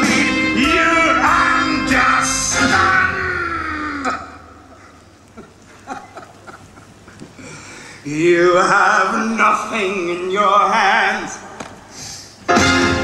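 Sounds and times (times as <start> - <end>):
man singing with vibrato: 0.0 - 4.8, 8.0 - 11.9.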